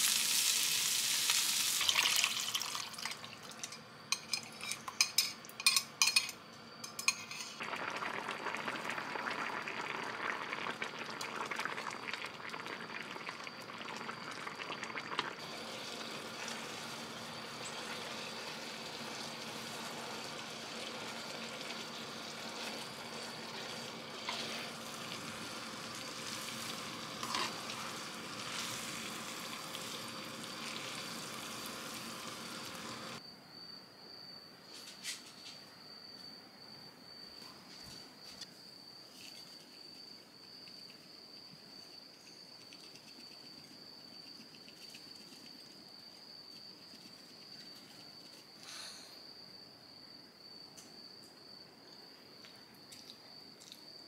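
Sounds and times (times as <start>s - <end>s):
sauce sizzling in a frying pan: 0.0s - 3.0s, 7.6s - 33.2s.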